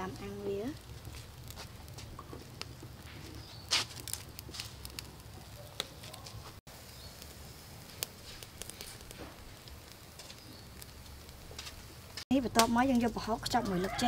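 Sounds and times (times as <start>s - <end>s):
charcoal fire crackling: 0.0s - 14.0s
sharp pops: 0.8s - 12.8s.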